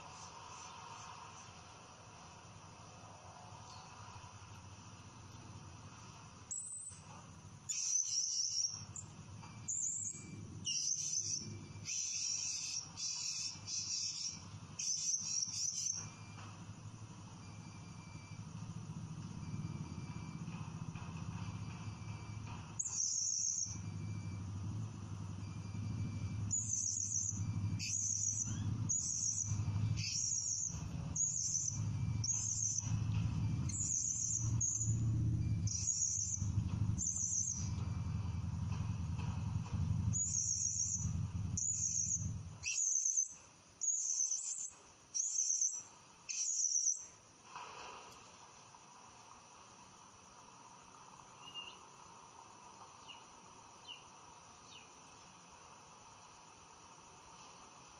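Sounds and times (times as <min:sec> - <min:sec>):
low hum: 0:15.9 - 0:42.7.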